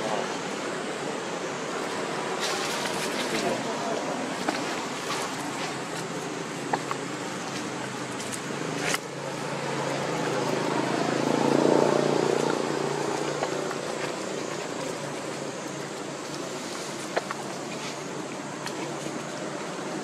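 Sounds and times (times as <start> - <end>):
passing vehicle engine: 7.2 - 17.0.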